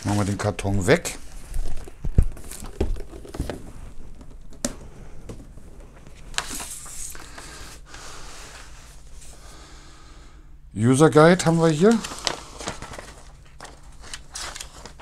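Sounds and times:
paper leaflets rustling: 0.0 - 3.6, 6.0 - 9.4, 11.4 - 15.0.

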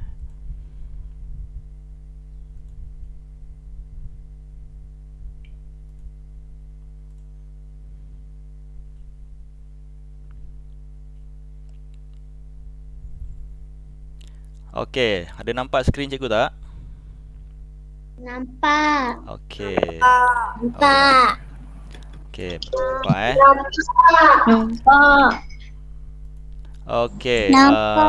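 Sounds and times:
low electrical hum: 0.0 - 28.0
faint mouse clicks: 7.1 - 7.3.

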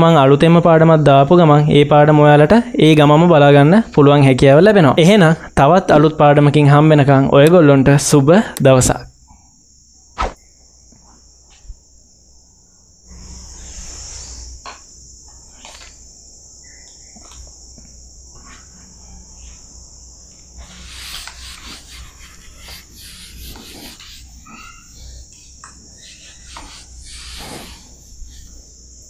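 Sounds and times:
high-pitched hiss: 0.0 - 29.0
eraser wiping whiteboard: 20.6 - 25.1, 26.0 - 28.6.

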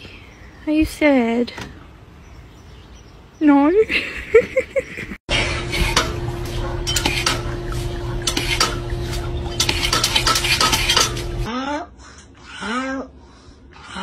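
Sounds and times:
steady hum: 5.3 - 11.5.

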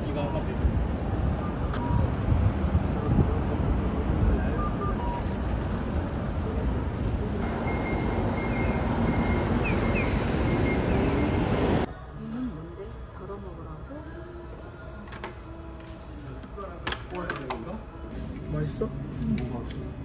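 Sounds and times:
moving vehicle rumbling: 0.0 - 11.9.

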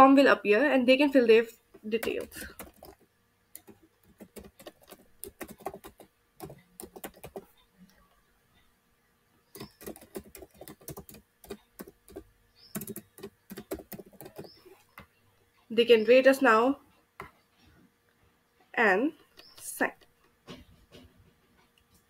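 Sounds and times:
computer keyboard typing: 1.8 - 7.6, 9.5 - 14.8.

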